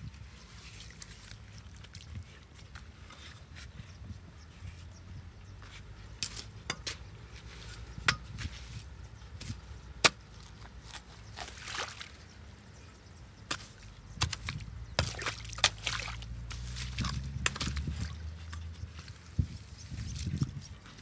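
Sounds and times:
muddy water splashing: 0.0s - 3.0s, 10.3s - 12.5s, 13.5s - 20.6s
digging tool chopping grass and mud: 9.4s - 11.6s, 13.5s - 18.7s.

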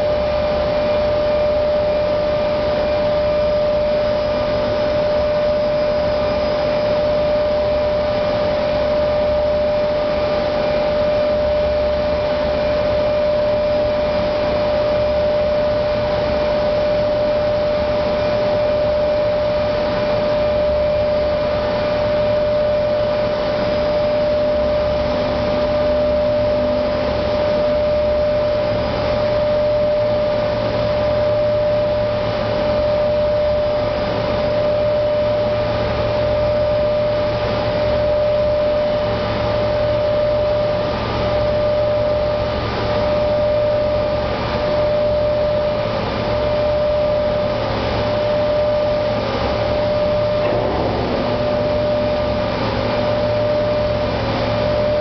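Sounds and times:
machine whine and hum: 0.0s - 55.0s
churning water rushing: 48.7s - 54.9s.

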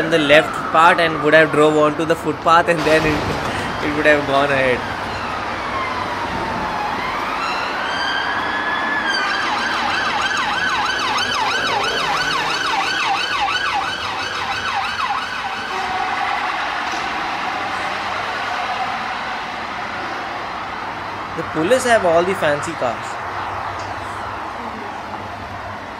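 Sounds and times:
police siren wailing and yelping: 0.0s - 2.4s, 4.8s - 20.8s
traffic: 0.0s - 25.9s.

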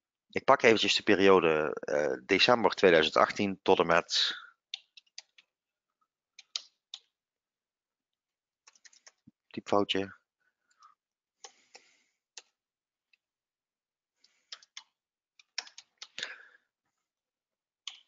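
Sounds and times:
keyboard typing: 4.8s - 5.5s, 6.4s - 7.1s, 8.7s - 9.2s, 14.5s - 16.3s.

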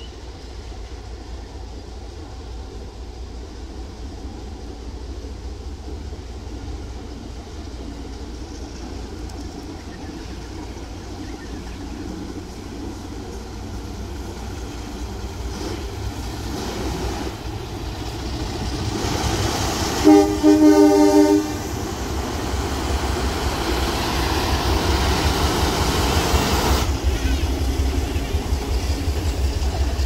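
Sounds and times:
steam locomotive hissing: 0.0s - 30.0s
train running over steel bridge: 0.0s - 30.0s
multi-tone locomotive horn: 20.0s - 21.8s.

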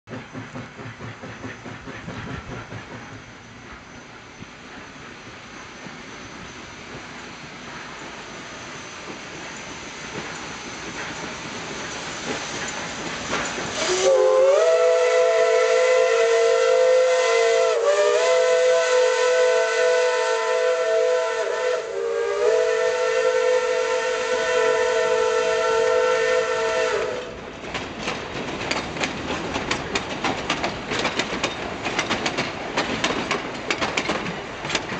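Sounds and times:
train wheels clattering over rail joints: 0.1s - 14.4s, 27.2s - 34.9s
steam whistle blowing: 13.7s - 27.4s.

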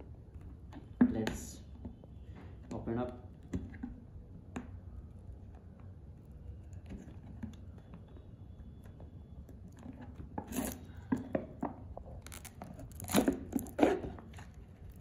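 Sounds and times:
fingernail scratching foil: 10.5s - 10.9s, 12.2s - 14.0s
foil crinkling and tearing: 12.2s - 13.8s.

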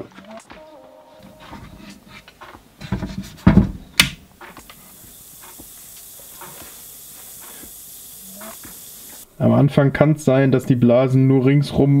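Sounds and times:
dull knocks: 2.8s - 4.1s
fizzing hiss of gas bubbles: 4.4s - 9.3s.

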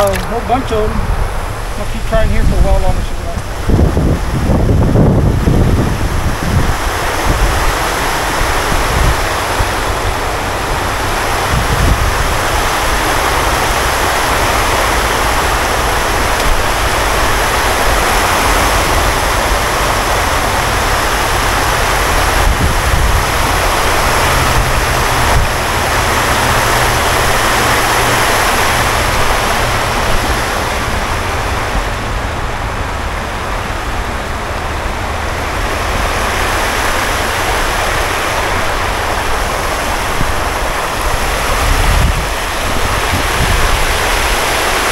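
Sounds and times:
water rushing over a weir: 0.0s - 44.9s.

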